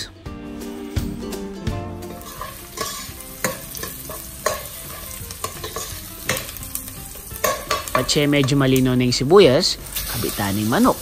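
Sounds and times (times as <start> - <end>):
garlic and onion sizzling in oil: 0.6 - 11.0
metal spoon scraping a pot: 2.2 - 6.5.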